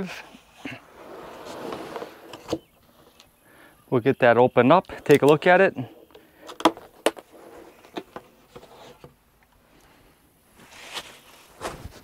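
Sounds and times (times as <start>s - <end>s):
cardboard scraping: 0.2s - 3.1s, 6.6s - 9.2s, 10.6s - 12.0s.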